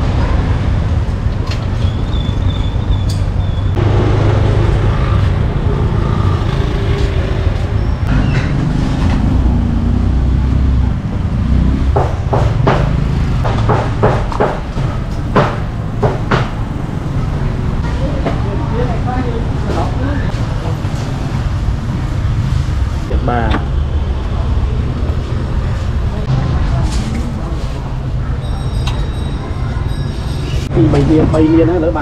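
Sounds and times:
vehicles passing: 0.0s - 32.0s
sharp knocks: 11.9s - 16.6s.

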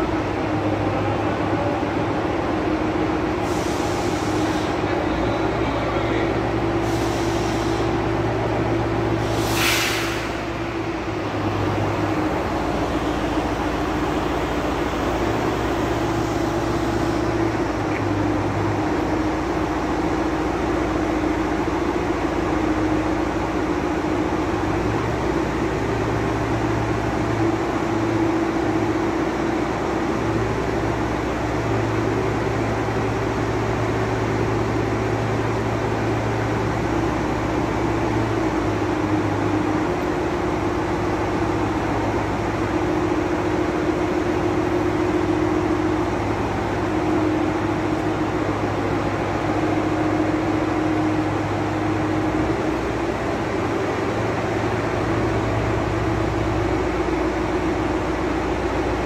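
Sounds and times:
crane engine running under load: 0.0s - 59.0s
brief hiss: 9.2s - 10.5s.

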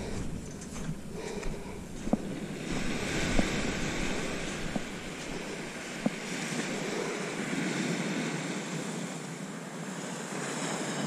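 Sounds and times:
wind on microphone: 0.0s - 8.9s
surf washing onto beach: 2.0s - 9.3s.

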